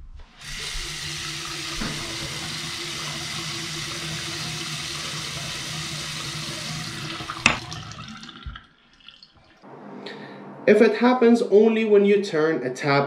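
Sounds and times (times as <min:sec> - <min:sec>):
faucet water running into sink: 0:00.3 - 0:09.6
low hum: 0:09.6 - 0:11.7.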